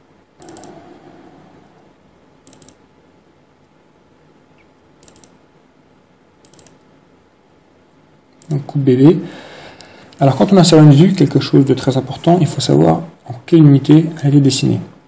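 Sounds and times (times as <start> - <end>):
computer mouse double-clicks: 0.4 - 0.8, 2.4 - 2.8, 5.0 - 5.4, 6.4 - 6.9.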